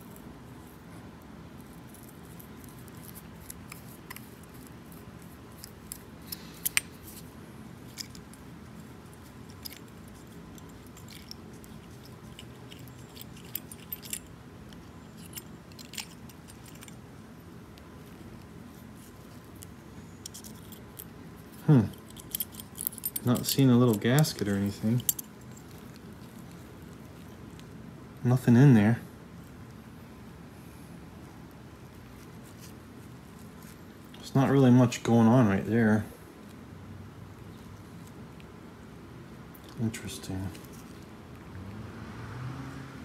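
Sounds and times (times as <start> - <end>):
faint steady hum: 0.0 - 43.0
metallic clicks and clinks: 5.6 - 7.2, 9.4 - 17.0, 20.2 - 26.6.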